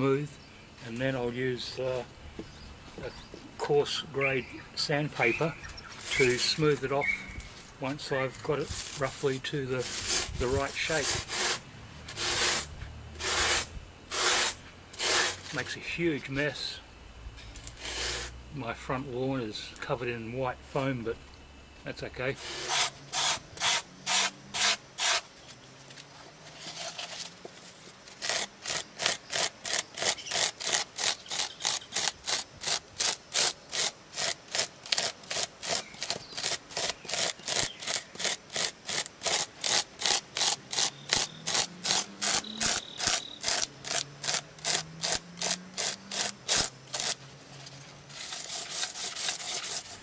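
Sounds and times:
foam being scraped: 5.9 - 6.8, 8.6 - 15.6, 17.7 - 18.4, 22.4 - 25.3, 26.4 - 50.0.

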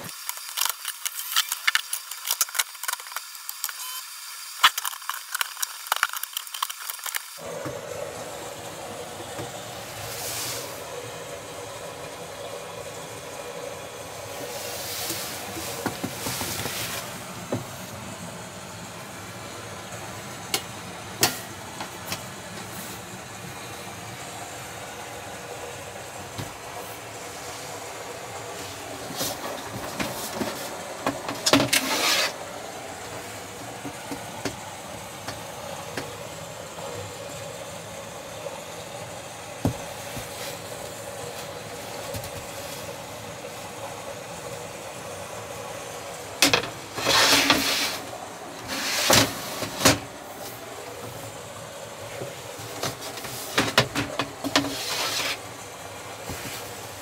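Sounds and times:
rustling or rubbing: 47.0 - 49.8, 54.5 - 55.4.

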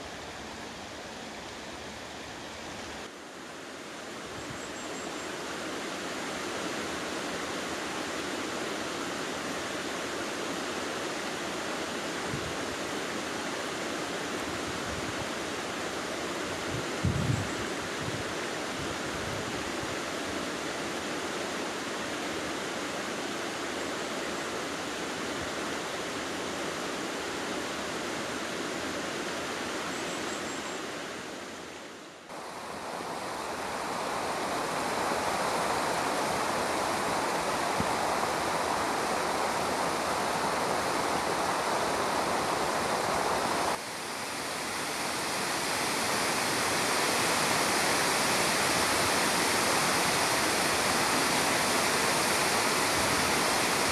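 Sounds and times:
water rushing over weir: 32.3 - 53.9.

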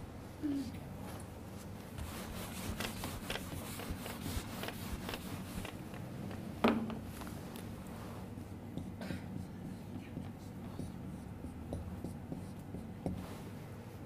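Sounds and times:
marker writing on a whiteboard: 2.0 - 6.1, 8.7 - 13.4.

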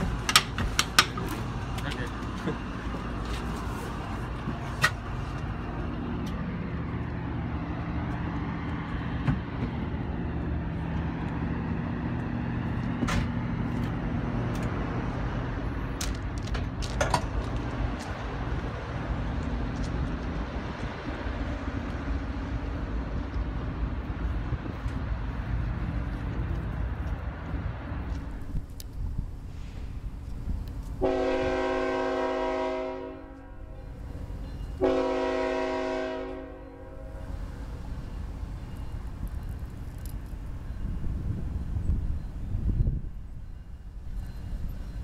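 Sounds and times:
diesel locomotive idling: 0.0 - 45.0
sharp clicks and knocks: 0.1 - 2.0.

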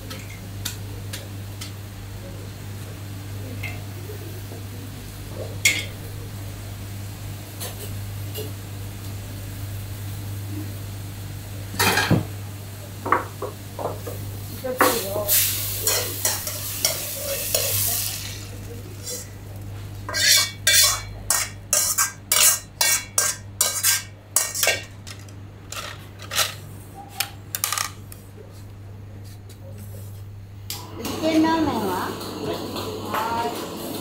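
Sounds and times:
metal utensils and pots clattering: 11.8 - 12.3, 20.1 - 26.6.

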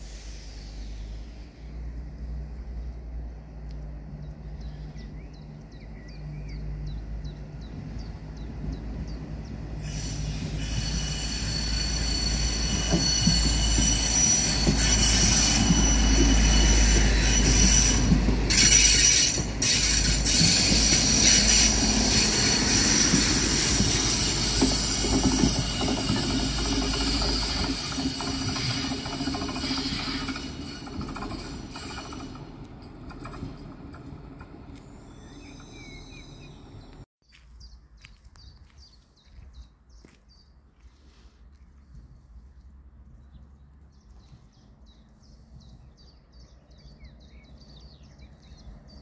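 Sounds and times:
train rumble: 0.0 - 37.1
train wheels squealing: 9.6 - 36.8.

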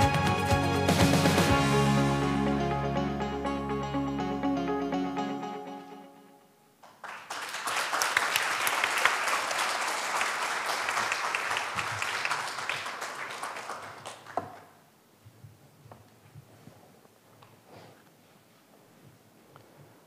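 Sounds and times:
audience applauding: 6.8 - 14.8.

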